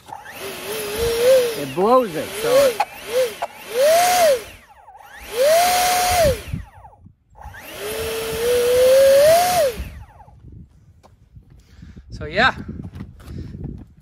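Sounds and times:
electric ducted fan whine: 0.0s - 10.4s.

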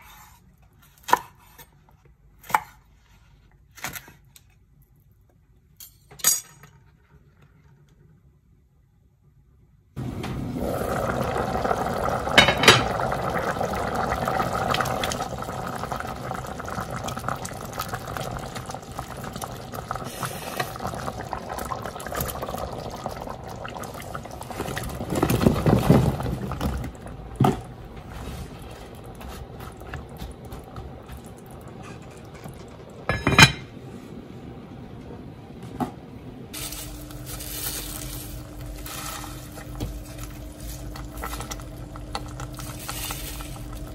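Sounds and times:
liquid bubbling in a pot: 10.0s - 33.3s, 37.2s - 43.9s
pot lid clanking: 12.4s - 13.0s.

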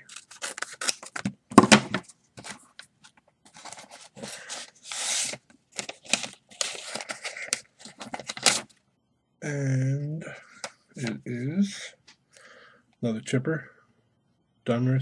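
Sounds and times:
paper envelope ripping: 0.0s - 1.3s, 3.5s - 8.7s.

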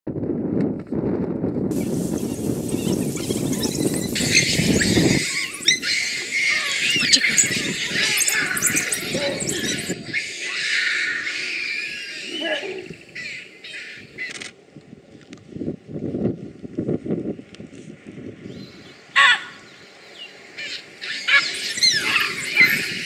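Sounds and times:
wild dogs twittering and squealing: 1.7s - 14.3s, 18.6s - 23.0s
baboons screaming: 1.8s - 14.3s, 19.2s - 19.7s, 20.6s - 23.0s.

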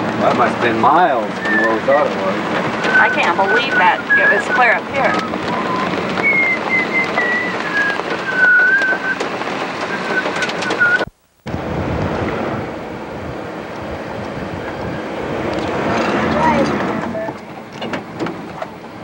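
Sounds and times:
wind and rain on microphone: 0.0s - 19.0s
thin wavering whistling tone: 2.7s - 11.1s.

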